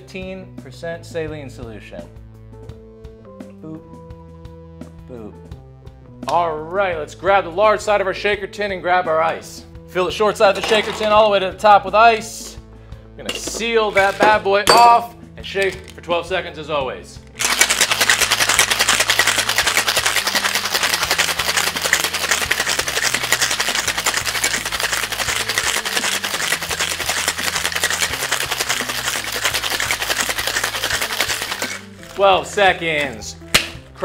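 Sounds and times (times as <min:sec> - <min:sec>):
ice rattling in cocktail shaker: 0:10.5 - 0:11.3, 0:13.3 - 0:15.0, 0:15.6 - 0:16.0, 0:17.4 - 0:33.7.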